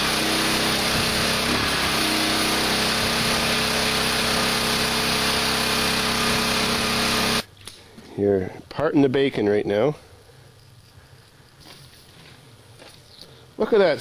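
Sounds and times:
small gasoline engine droning: 0.0s - 7.4s.

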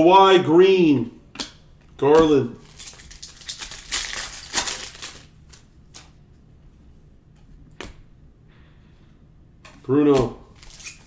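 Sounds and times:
trading cards flipped through: 9.6s - 11.0s.

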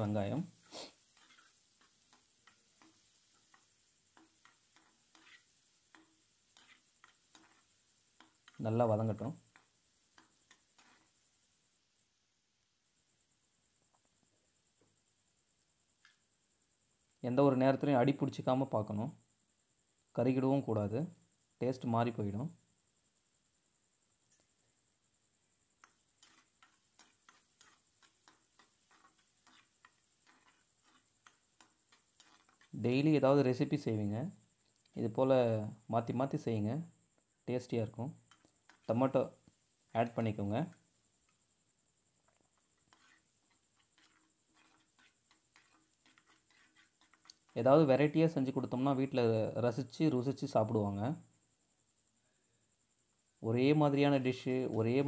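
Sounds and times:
spatula scraping a pan: 0.0s - 12.1s, 25.5s - 36.1s, 37.6s - 41.4s, 42.2s - 49.0s.

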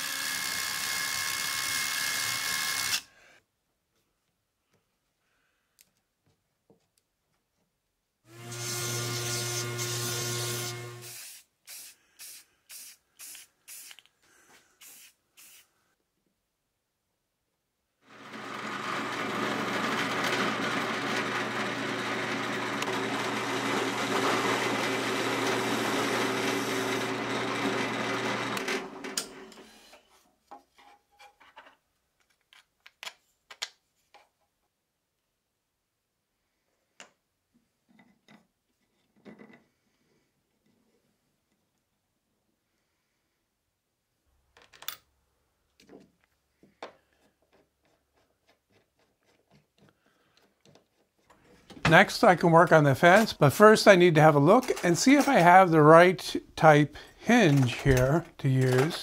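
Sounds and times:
drill press motor running: 18.1s - 29.2s.

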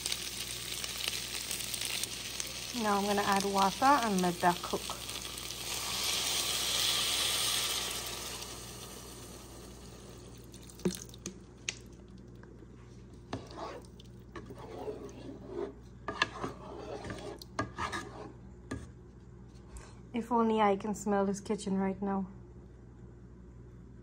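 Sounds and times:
water hissing in hot pot: 0.0s - 10.8s
rice simmering: 0.0s - 12.4s.

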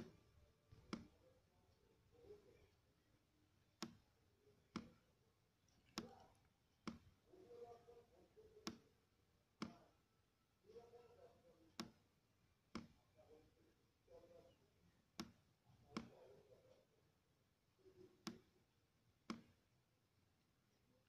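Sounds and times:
computer mouse clicking: 0.0s - 1.2s, 3.8s - 4.0s, 4.7s - 5.0s, 5.7s - 7.1s, 8.6s - 8.9s, 11.7s - 12.0s, 12.7s - 13.0s, 15.2s - 16.3s, 19.3s - 19.6s.

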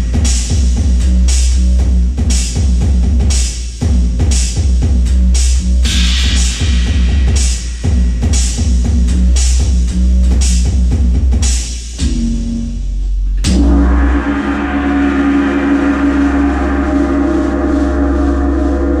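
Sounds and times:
drum kit playing: 0.0s - 12.8s
electronic backing track with bass: 0.0s - 19.0s
ringing cymbal crash: 5.8s - 8.7s, 13.5s - 19.0s.

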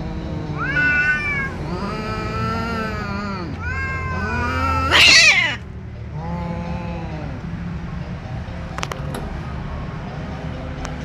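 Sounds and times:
cats yowling: 0.0s - 5.6s
cat screech: 0.6s - 5.6s.

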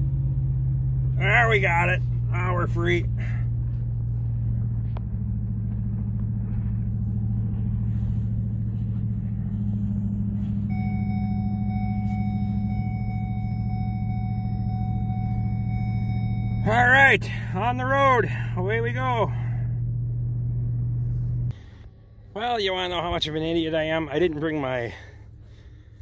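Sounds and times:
road noise: 0.0s - 26.0s
truck engine running: 0.0s - 26.0s
thin high tone: 10.4s - 17.2s.

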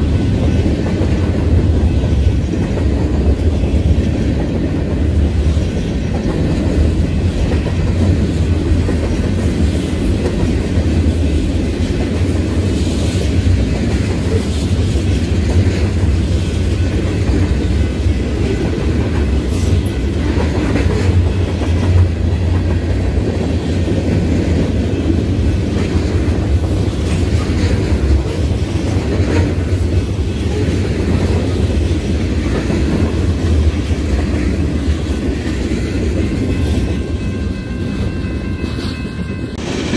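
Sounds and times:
train wheels rolling on rails: 0.0s - 39.9s.

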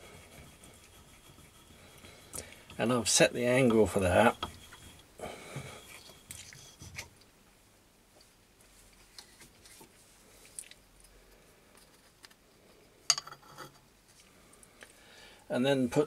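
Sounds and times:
faint handling noises: 8.1s - 15.0s.

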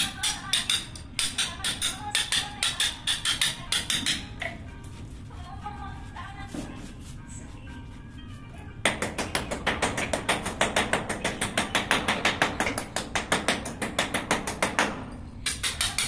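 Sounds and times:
hammer tapping chisel on concrete: 8.9s - 16.0s.

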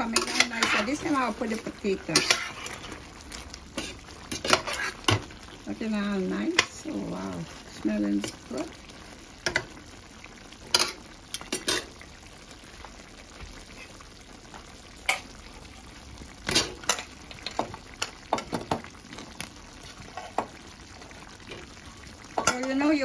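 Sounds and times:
curry sizzling in a pot: 0.0s - 23.0s.

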